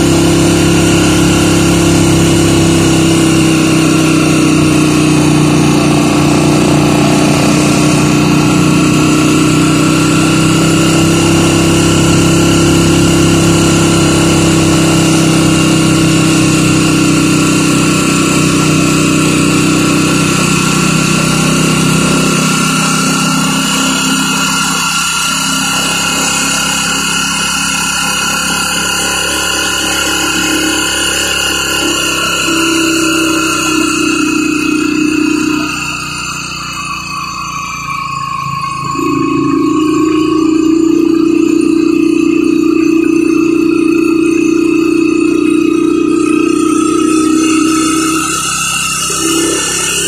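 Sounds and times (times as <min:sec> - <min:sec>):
wind and tyres on wet road: 0:00.0 - 0:38.7
motorcycle engine running: 0:00.0 - 0:50.0.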